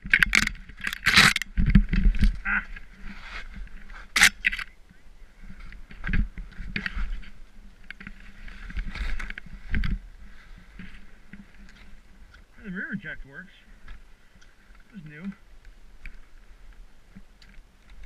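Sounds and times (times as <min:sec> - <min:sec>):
skis swishing through powder snow: 0:03.0 - 0:04.1.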